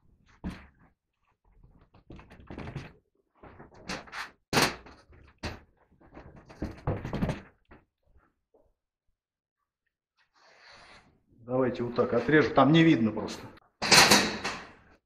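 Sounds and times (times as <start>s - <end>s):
knocks and thumps: 1.6s - 3.9s, 4.5s - 7.9s.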